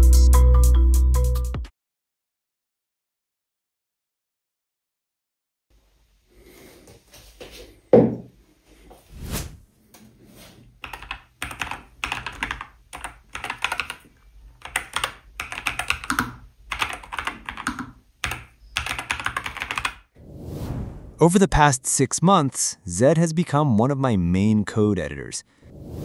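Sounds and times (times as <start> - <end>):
keyboard typing clicks: 14.6 - 19.9.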